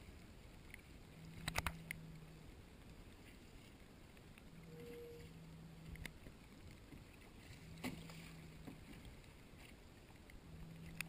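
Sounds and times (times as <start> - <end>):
faint low hum: 0.0 - 11.0
faint water and wind: 0.0 - 11.0
light clicks: 0.6 - 2.0.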